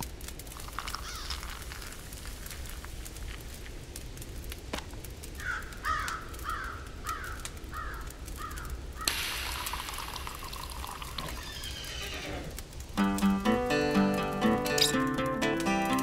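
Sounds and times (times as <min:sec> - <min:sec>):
campfire crackling: 0:00.0 - 0:16.0
liquid pouring: 0:00.4 - 0:02.9, 0:09.1 - 0:12.0
crow cawing: 0:01.0 - 0:01.4, 0:05.4 - 0:09.1.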